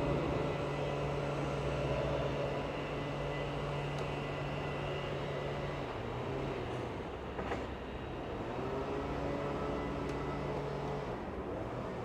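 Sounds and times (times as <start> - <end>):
train wheels on rails: 0.0 - 7.9
train electric hum: 0.0 - 12.0.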